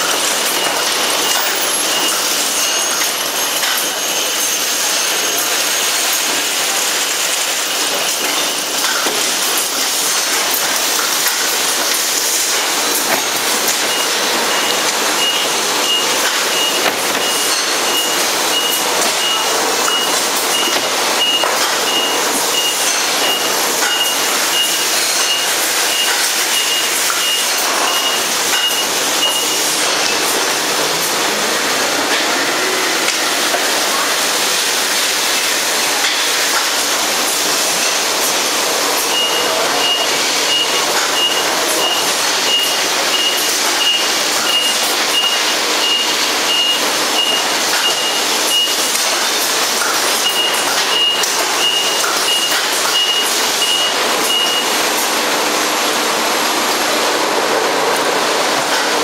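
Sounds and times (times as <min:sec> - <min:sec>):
production line machinery running: 0:00.0 - 0:59.0
high-pitched beep: 0:00.1 - 0:05.6, 0:10.9 - 0:29.9, 0:39.1 - 0:49.0, 0:50.2 - 0:54.8.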